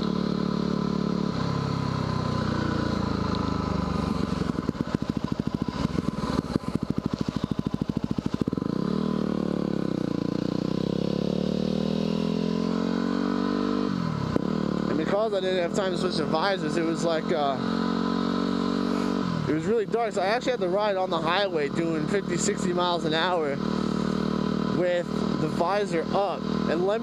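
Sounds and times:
motorcycle engine idling unevenly: 0.0s - 11.2s
motorcycle engine revving: 0.0s - 27.0s.

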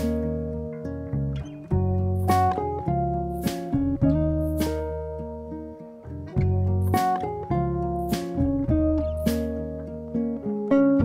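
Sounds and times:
plucked-string melody: 0.0s - 11.0s
light percussion hit: 1.7s - 5.2s, 6.4s - 9.8s.

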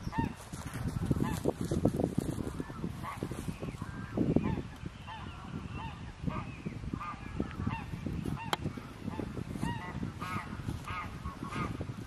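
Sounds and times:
geese honking: 2.4s - 12.0s.

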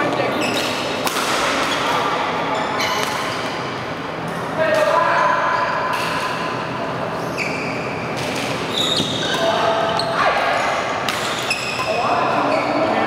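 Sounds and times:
shoes squeaking on court: 0.0s - 1.0s, 2.6s - 3.6s, 7.2s - 10.2s, 11.1s - 13.0s.

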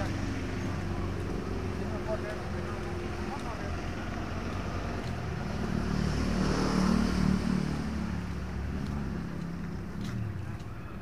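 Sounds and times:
vehicle passing by: 0.0s - 11.0s.

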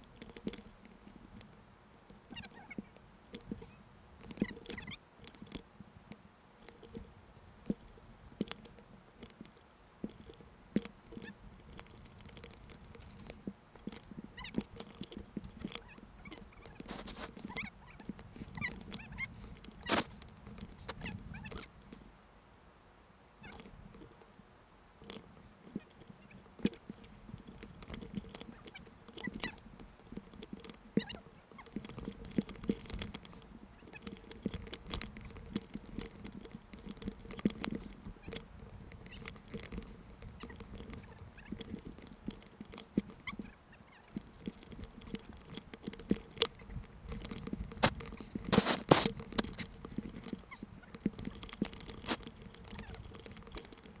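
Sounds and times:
snow scraping camera housing: 11.2s - 21.7s, 25.1s - 54.0s.

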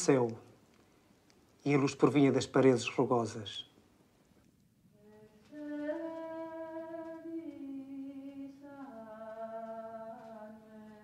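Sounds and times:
person singing unaccompanied: 5.0s - 11.0s.

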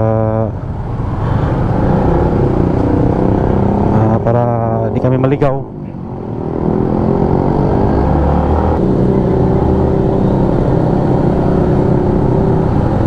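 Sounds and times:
motorcycle engine running: 6.4s - 13.0s.

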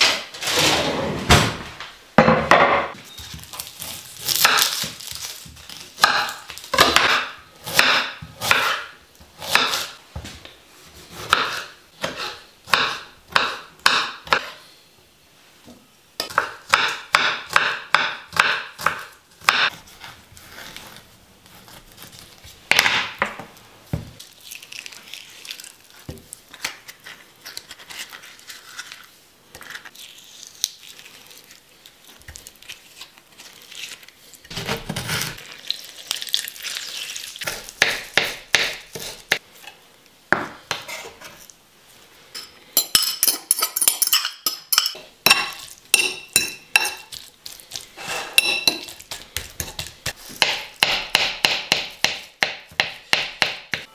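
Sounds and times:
fork scraping a ceramic plate: 48.0s - 49.0s.

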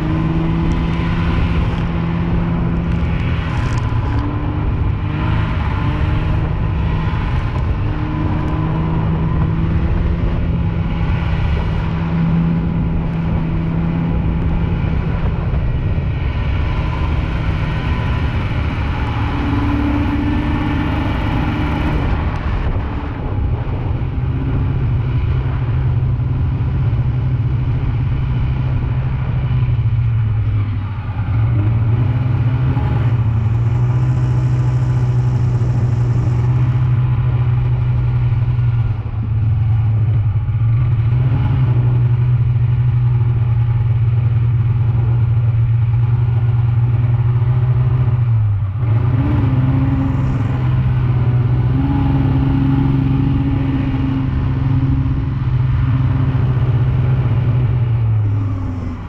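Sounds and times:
snowmobile engine running: 0.0s - 59.0s.

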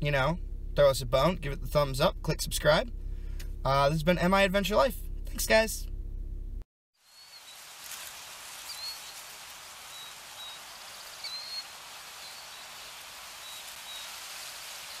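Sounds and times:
bird chirping: 7.0s - 15.0s
steady rushing hiss: 7.0s - 15.0s.

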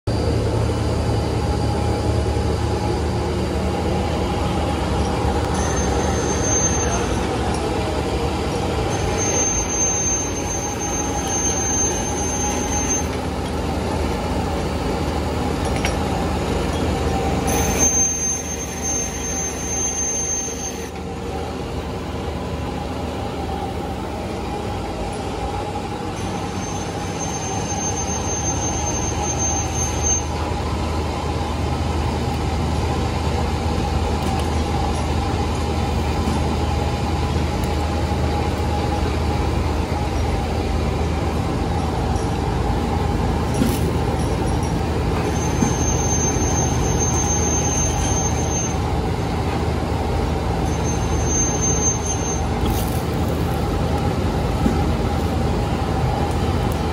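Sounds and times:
high thin whine: 0.1s - 14.8s
constant hum: 0.1s - 56.9s
machinery running: 0.1s - 56.9s.

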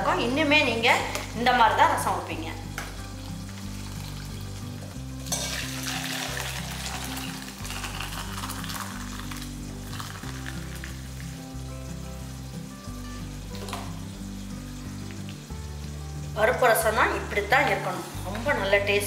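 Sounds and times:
soft background music: 0.0s - 19.0s
liquid pouring into a bowl: 5.2s - 11.3s.

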